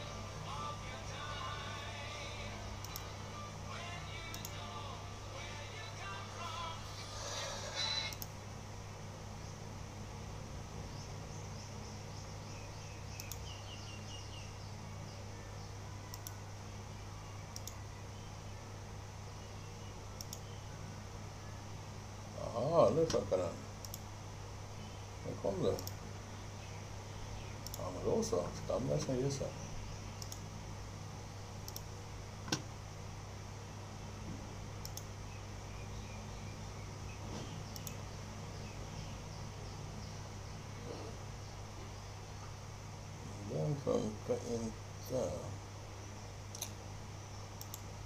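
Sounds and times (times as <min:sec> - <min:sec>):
steady low hum: 0:00.0 - 0:48.0
faint high ticks: 0:04.3 - 0:04.6, 0:13.1 - 0:13.6, 0:16.1 - 0:16.4, 0:17.5 - 0:17.8, 0:20.2 - 0:20.6, 0:23.8 - 0:24.1, 0:25.7 - 0:26.0, 0:27.6 - 0:27.9, 0:30.2 - 0:30.5, 0:31.6 - 0:31.9, 0:34.8 - 0:35.1, 0:37.7 - 0:38.0, 0:47.6 - 0:47.9
sharp double clicks: 0:04.3 - 0:04.6, 0:13.1 - 0:13.6, 0:17.5 - 0:17.8, 0:20.2 - 0:20.5, 0:23.8 - 0:24.1, 0:25.7 - 0:26.0, 0:27.6 - 0:27.9, 0:30.2 - 0:30.5, 0:31.6 - 0:31.9, 0:34.8 - 0:35.1, 0:37.7 - 0:38.0, 0:46.5 - 0:46.8, 0:47.6 - 0:47.9.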